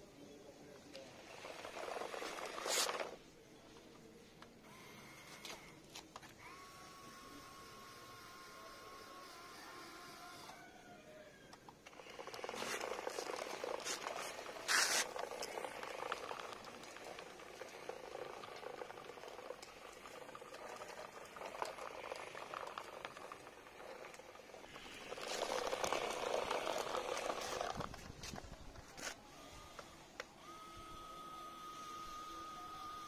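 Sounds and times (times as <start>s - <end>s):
small electric gear motor: 0.9s - 3.2s, 4.6s - 10.8s, 11.4s - 33.0s
wheels rattling on concrete: 1.1s - 3.2s, 11.9s - 29.1s.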